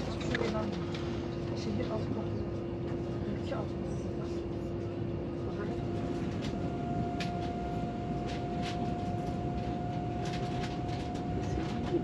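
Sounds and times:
steady high whine: 0:04.6 - 0:12.0.

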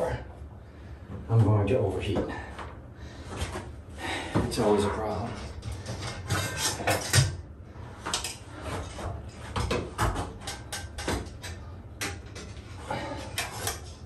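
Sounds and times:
tools knocking and clunking: 0:08.1 - 0:14.0.

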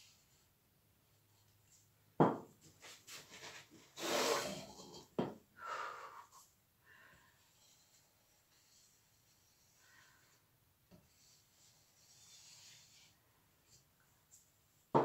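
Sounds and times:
plastic cup knocking on canvas: 0:02.2 - 0:02.5
rubbing and scraping: 0:02.6 - 0:05.1, 0:07.4 - 0:14.6.

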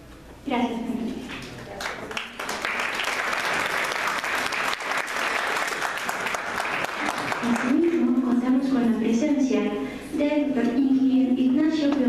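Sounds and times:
audience applauding: 0:01.7 - 0:07.9.

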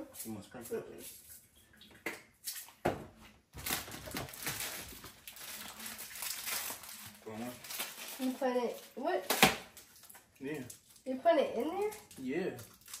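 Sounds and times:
plastic packet crinkling: 0:03.6 - 0:13.0.

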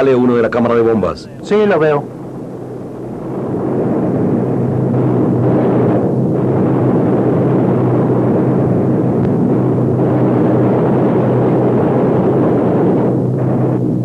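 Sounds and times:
aircraft piston engines droning: 0:00.0 - 0:06.2.

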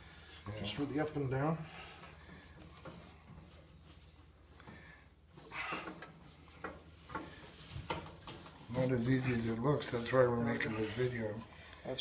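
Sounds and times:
faint metal scraping: 0:05.4 - 0:11.7.

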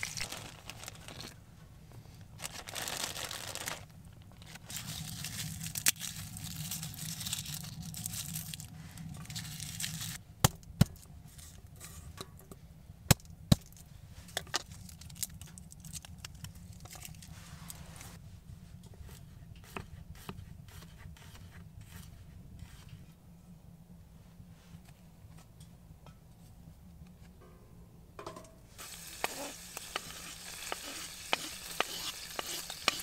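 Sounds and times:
garlic skins crinkling: 0:00.0 - 0:01.4, 0:02.3 - 0:10.2, 0:28.8 - 0:33.0.

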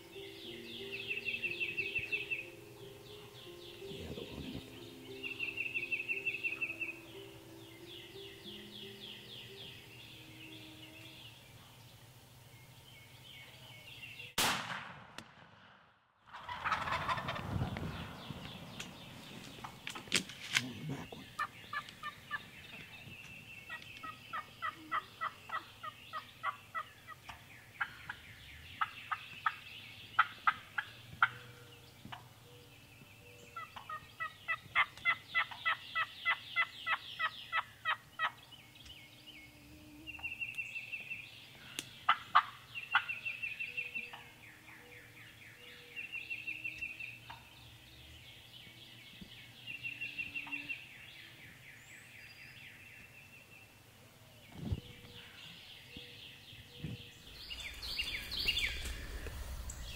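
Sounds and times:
turkeys calling: 0:00.0 - 0:11.5, 0:16.3 - 0:39.0, 0:40.1 - 0:47.7, 0:57.2 - 0:59.9
turkey gobbling: 0:16.3 - 0:18.2, 0:21.0 - 0:22.4, 0:23.7 - 0:28.2, 0:30.2 - 0:31.5, 0:33.6 - 0:38.4, 0:42.1 - 0:44.3.

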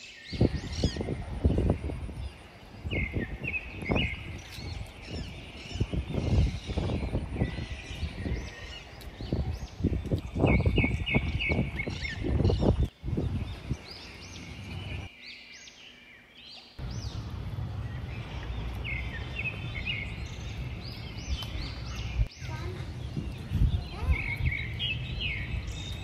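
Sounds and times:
birds chirping: 0:00.0 - 0:26.0
wind buffeting microphone: 0:00.2 - 0:15.1, 0:16.8 - 0:26.0
low outdoor rumble: 0:16.8 - 0:26.0.

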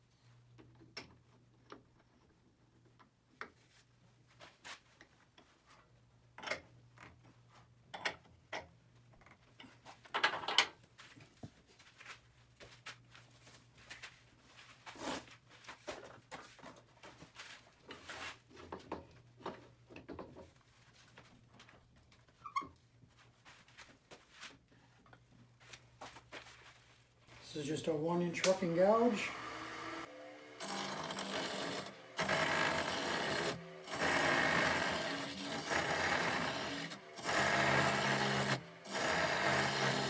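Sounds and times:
clicks and clunks of metal and wood: 0:06.3 - 0:10.8, 0:15.8 - 0:22.8.

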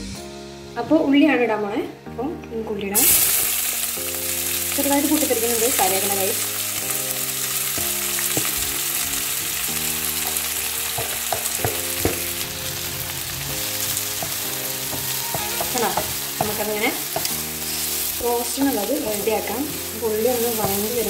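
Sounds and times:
onions sizzling in oil: 0:03.0 - 0:21.0
spatula stirring: 0:10.1 - 0:21.0.

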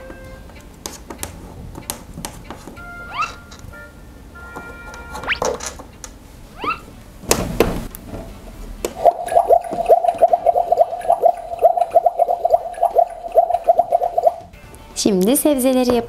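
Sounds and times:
rising swishes: 0:03.0 - 0:03.5
electronic bubbling sizzle: 0:09.0 - 0:14.5.

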